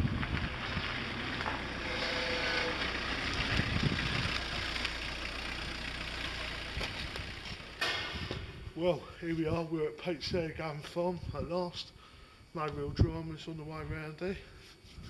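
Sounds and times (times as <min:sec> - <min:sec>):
engine idling: 0:00.9 - 0:08.7.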